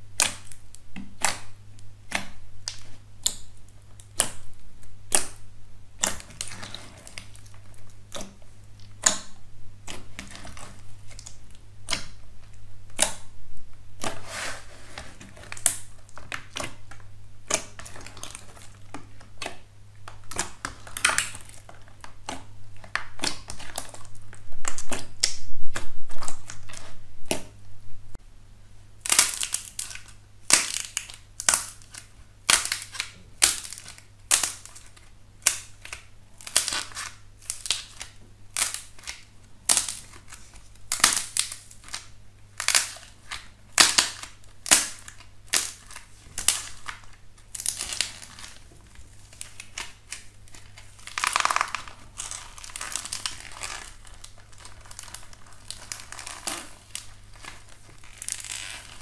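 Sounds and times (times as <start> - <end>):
slime crackling: 14.0 - 27.6, 29.0 - 59.0
slime clicking and popping: 29.0 - 34.8.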